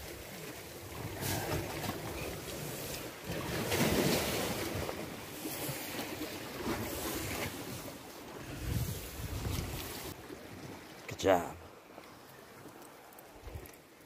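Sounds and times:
wind buffeting microphone: 0:08.4 - 0:10.1.

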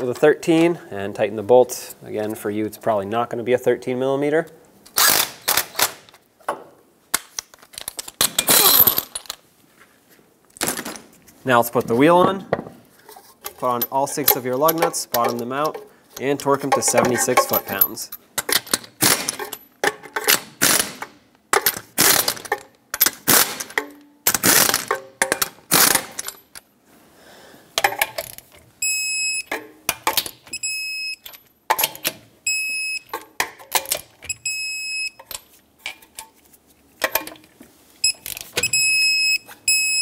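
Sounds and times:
pneumatic impact wrench: 0:05.0 - 0:06.0, 0:19.0 - 0:19.4, 0:20.3 - 0:21.1, 0:21.9 - 0:25.0, 0:25.6 - 0:26.2
torque wrench beeps: 0:28.8 - 0:29.5, 0:30.5 - 0:31.2, 0:32.5 - 0:33.1, 0:34.3 - 0:35.2, 0:38.0 - 0:40.0.

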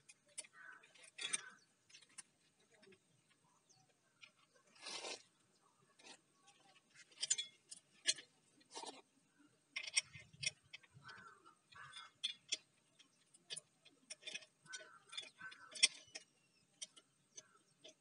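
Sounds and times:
saw chain clicking and clinking: 0:07.0 - 0:08.3, 0:09.8 - 0:18.0.

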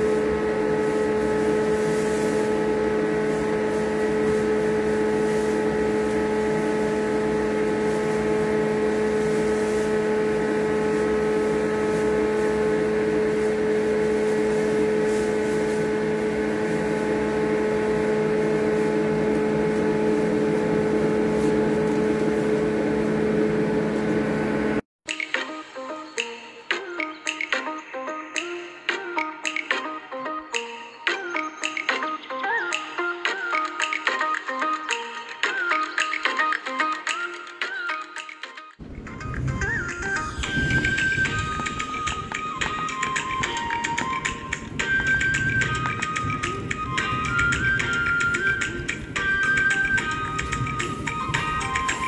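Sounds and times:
electric motor humming: 0:00.0 - 0:24.8.

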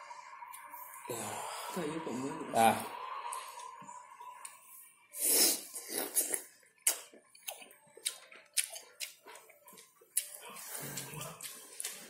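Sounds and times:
person chewing with wet clicks: 0:05.8 - 0:12.0.

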